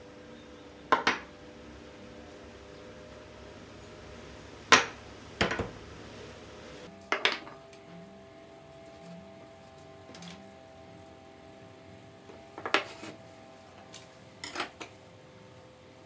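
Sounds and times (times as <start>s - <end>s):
wood pieces knocking on a board: 0.9s - 1.3s, 7.1s - 7.6s, 12.6s - 12.9s.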